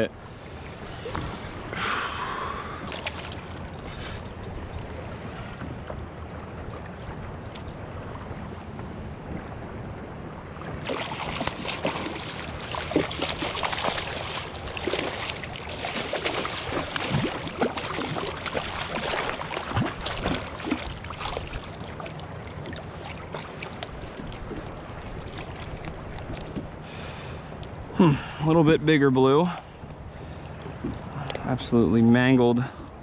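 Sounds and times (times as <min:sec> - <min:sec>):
hiss of wind and water: 0:00.0 - 0:33.0
fish thrashing and splashing: 0:10.7 - 0:26.6.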